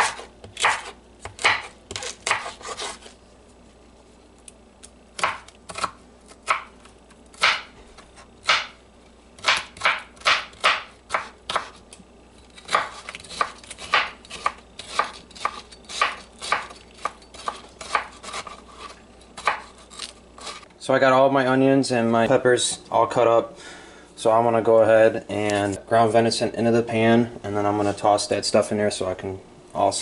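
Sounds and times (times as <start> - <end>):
knife chopping on wooden board: 0.0 - 3.0, 5.2 - 6.7, 7.4 - 7.7, 8.4 - 8.8, 9.4 - 11.8, 12.6 - 20.6.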